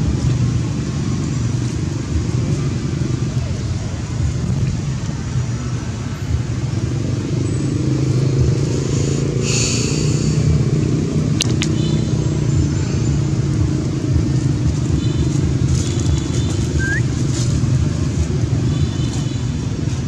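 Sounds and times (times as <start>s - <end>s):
vehicle engine rumbling: 0.0s - 20.0s
sharp clicks: 11.4s - 11.8s.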